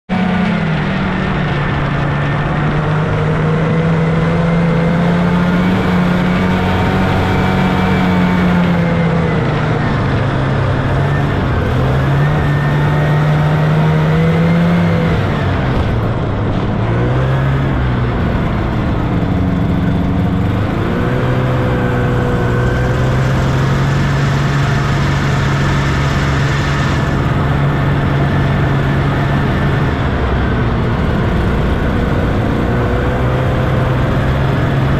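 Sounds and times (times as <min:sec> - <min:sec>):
snowmobile engine running: 0:00.1 - 0:34.9.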